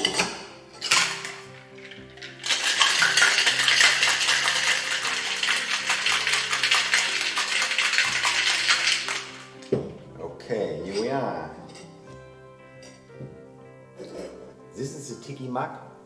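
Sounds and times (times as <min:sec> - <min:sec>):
background music: 0:00.0 - 0:16.0
ice rattling in metal shaker: 0:00.8 - 0:09.7.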